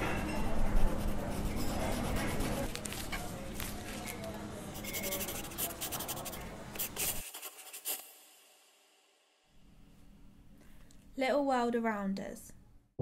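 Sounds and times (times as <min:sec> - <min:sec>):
pen scratching on paper: 0:00.8 - 0:02.7, 0:04.8 - 0:08.1.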